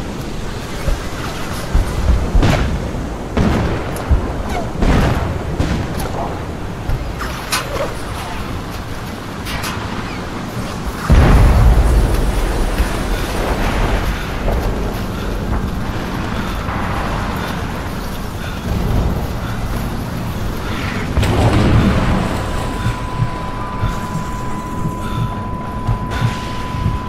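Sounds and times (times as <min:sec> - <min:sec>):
artillery explosions: 0:00.0 - 0:27.0
high ringing tone: 0:22.1 - 0:27.0.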